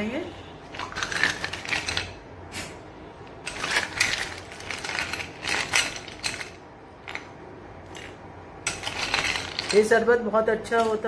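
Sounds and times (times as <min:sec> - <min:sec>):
ice cubes clinking in a glass bowl: 0:00.8 - 0:02.2, 0:03.5 - 0:07.2, 0:08.7 - 0:09.9.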